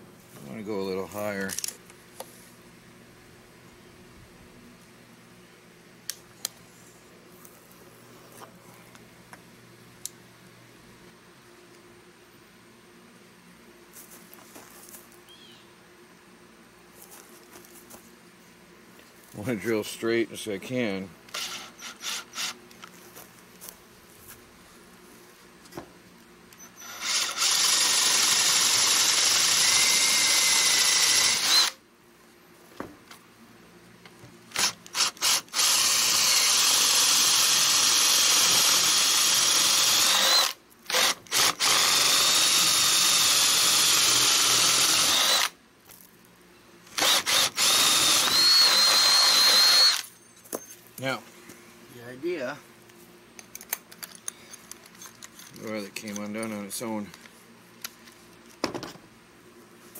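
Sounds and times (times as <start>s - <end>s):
cordless drill boring through wood: 21.3s - 22.6s, 26.6s - 31.8s, 34.6s - 45.6s, 47.0s - 50.0s
drill trigger blips: 26.6s - 31.8s, 34.6s - 45.5s, 47.0s - 50.0s.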